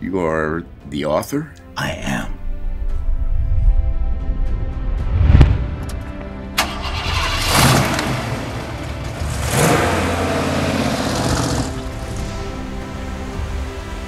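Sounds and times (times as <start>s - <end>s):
low music drone: 1.5s - 14.0s
loud low thump: 4.6s - 6.0s
sports car engine revving: 7.0s - 12.6s.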